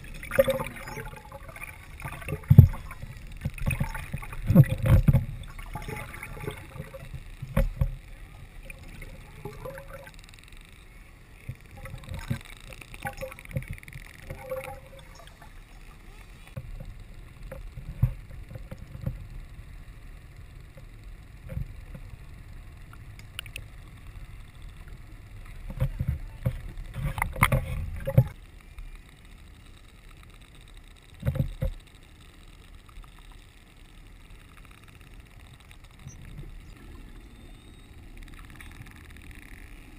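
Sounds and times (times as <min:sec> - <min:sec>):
underwater knocks and sloshing: 0:00.0 - 0:10.6, 0:11.4 - 0:19.3, 0:24.6 - 0:28.4, 0:31.1 - 0:31.8
muffled underwater rumble: 0:00.0 - 0:39.9.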